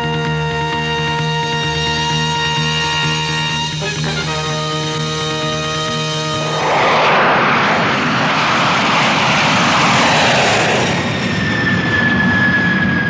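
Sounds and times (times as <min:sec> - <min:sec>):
high jet whine: 0:03.5 - 0:13.0
jet engine roar: 0:03.8 - 0:13.0.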